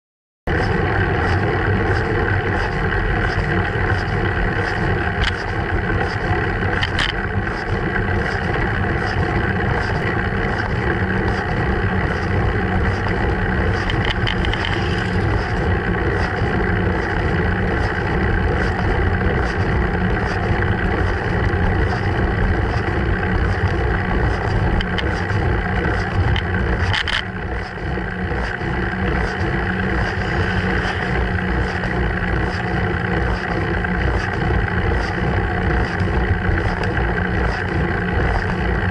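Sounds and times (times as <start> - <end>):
bicycle road rumble: 0.5 - 38.9.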